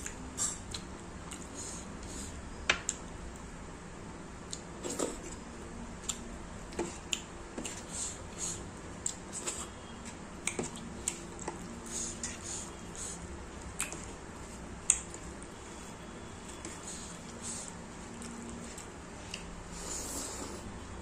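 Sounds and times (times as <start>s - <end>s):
wet food squishing by hand: 4.4s - 19.8s.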